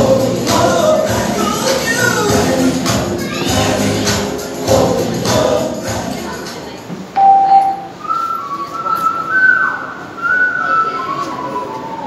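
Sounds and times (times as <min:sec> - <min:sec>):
backing music with singing: 0:00.0 - 0:08.2
person whistling held notes: 0:07.2 - 0:12.0.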